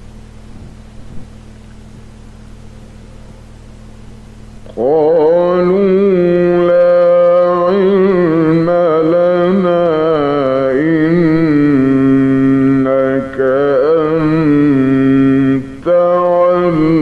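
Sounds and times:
man chanting melodic recitation: 4.7 - 17.0.

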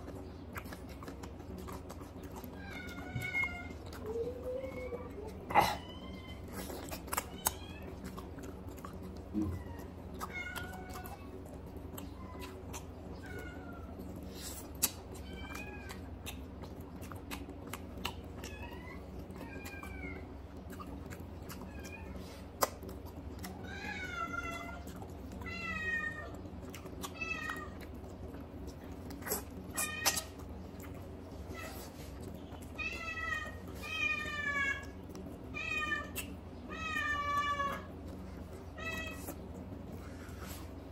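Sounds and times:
wet mouth clicks and smacks: 14.5 - 15.2, 22.4 - 23.6, 27.8 - 31.2, 36.1 - 36.4.

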